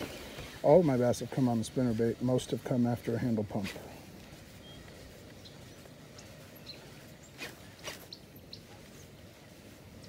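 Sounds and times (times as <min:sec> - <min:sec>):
faint high chirps: 0:04.5 - 0:09.2.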